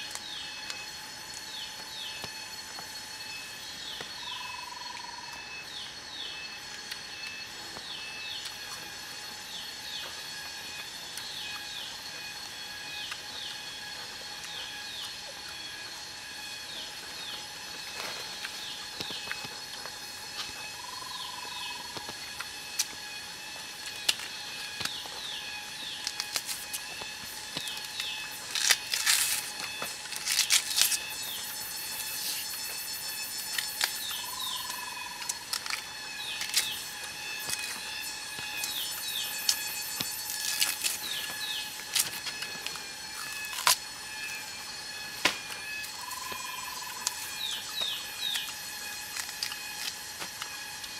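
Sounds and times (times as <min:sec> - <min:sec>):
steady high drone: 0:00.0 - 0:50.9
rustling and scraping of leaves: 0:16.8 - 0:50.9.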